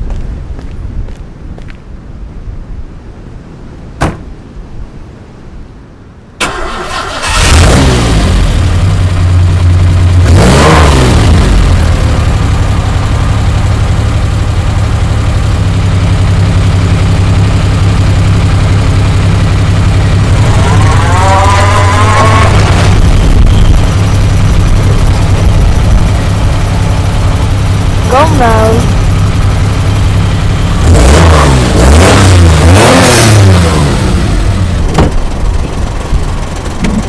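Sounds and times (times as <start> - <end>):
car engine revving and idling: 6.4 - 37.0.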